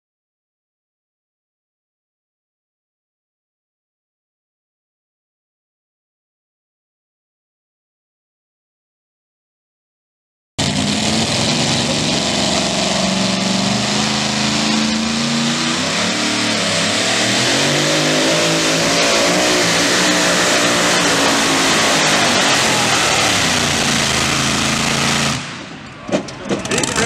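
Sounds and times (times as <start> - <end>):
truck engine at full power: 10.6 - 27.0.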